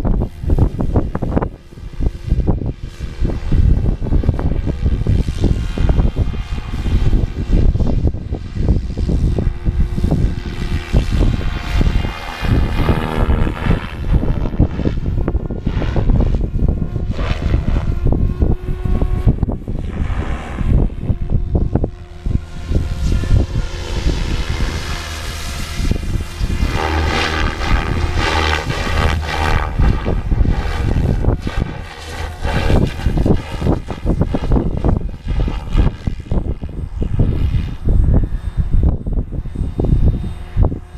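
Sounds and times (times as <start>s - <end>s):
faint rc helicopter whine: 0.0s - 40.9s
wind buffeting microphone: 0.0s - 40.9s.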